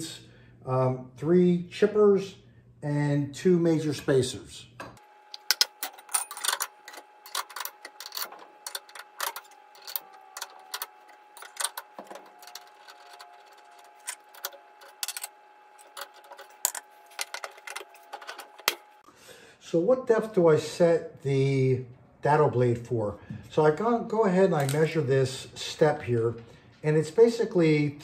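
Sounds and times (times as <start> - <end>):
faint hum: 0.0 - 28.0
metallic clicks and clinks: 5.4 - 18.4.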